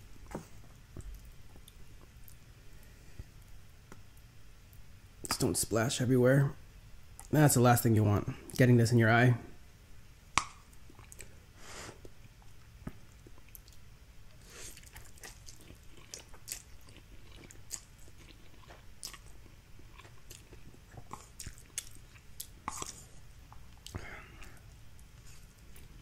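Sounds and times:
chewing mouth clicks and smacks: 10.4s - 11.3s, 12.0s - 13.8s, 14.8s - 26.0s.

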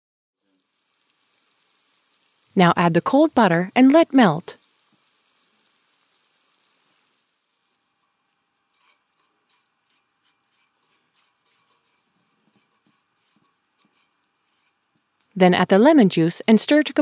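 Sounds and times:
faint sauce sizzling in pan: 0.4s - 17.0s
wooden spatula scraping pan: 7.8s - 14.9s.

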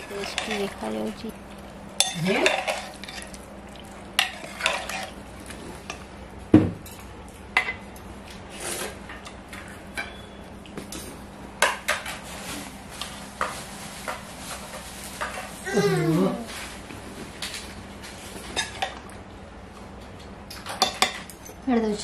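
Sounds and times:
ladle scraping and clinking pot: 4.2s - 5.1s.

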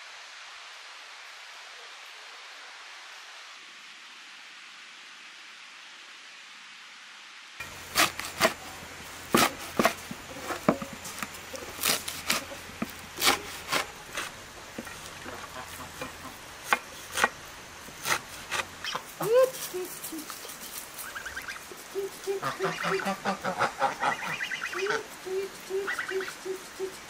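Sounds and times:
steady soft hiss: 0.0s - 27.0s
soft rustling of herbs: 7.6s - 27.0s
herb stems snapping: 9.4s - 14.4s.

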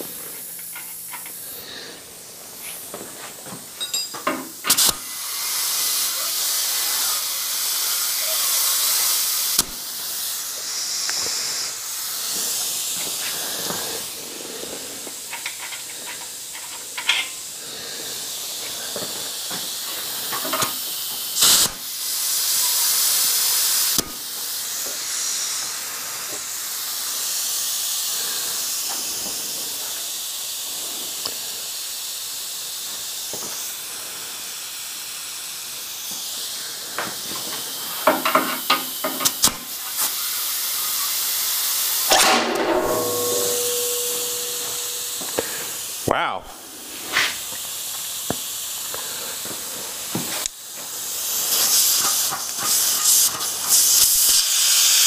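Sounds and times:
compressed air hissing: 0.0s - 55.0s
air fitting clicks: 4.2s - 5.0s, 37.5s - 40.1s.

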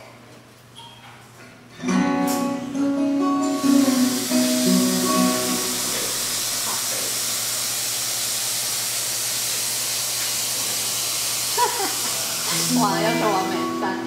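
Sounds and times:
acoustic guitar notes: 1.8s - 6.8s, 12.5s - 14.0s
steady hiss with low hum: 2.4s - 14.0s.

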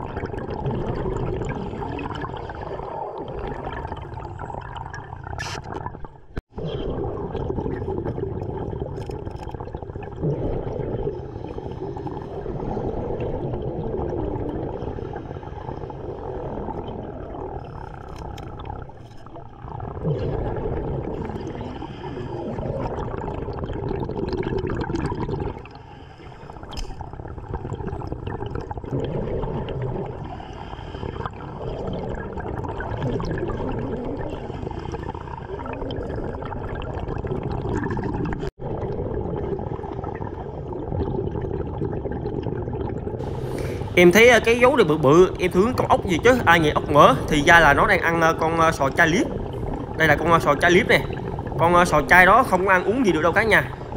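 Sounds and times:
underwater breath bubbling: 0.0s - 53.9s
water rushing: 43.2s - 53.9s.

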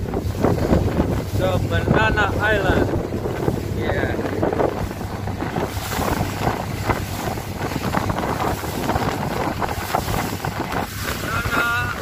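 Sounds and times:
boat engine drone: 0.0s - 12.0s
water rushing past hull: 0.0s - 12.0s
wind buffeting microphone: 0.0s - 12.0s.

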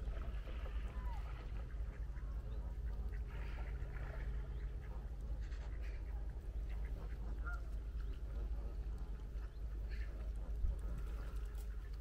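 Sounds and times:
low rumble: 0.0s - 12.0s
waterfowl calling: 0.0s - 12.0s.

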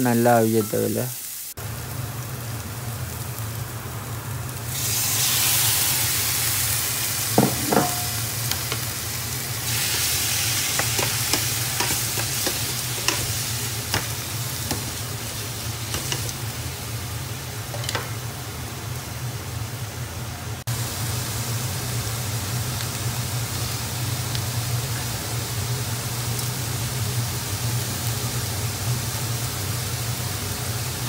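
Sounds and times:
prawns sizzling in hot oil: 0.0s - 31.0s
spatula scraping and tapping pan: 10.7s - 14.9s, 15.9s - 16.4s.

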